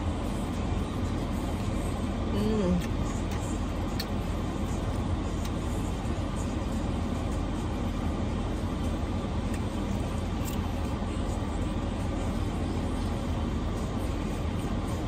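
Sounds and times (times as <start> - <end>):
car engine idling: 0.0 - 15.0
chewing clicks: 2.8 - 4.2.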